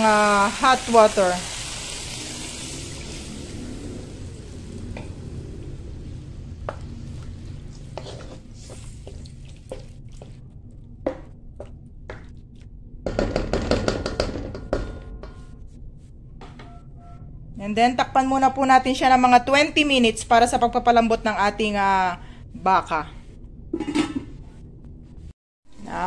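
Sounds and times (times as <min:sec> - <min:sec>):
low sizzle: 0:00.0 - 0:10.9
wooden spatula stirring in wok: 0:06.1 - 0:12.4.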